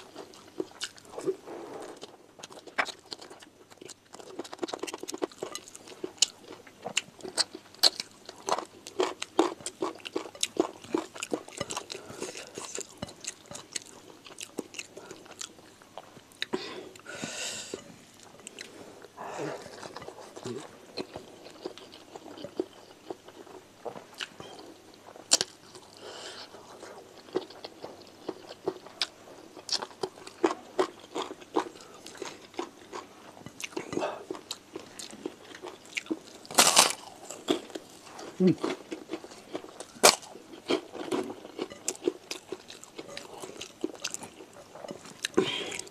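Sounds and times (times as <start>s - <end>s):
close chewing: 0.0s - 16.5s, 17.7s - 45.9s.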